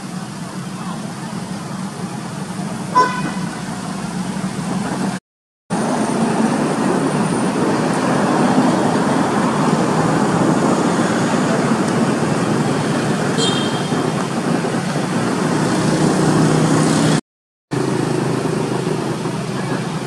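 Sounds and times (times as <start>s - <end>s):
road traffic noise: 0.0s - 20.0s.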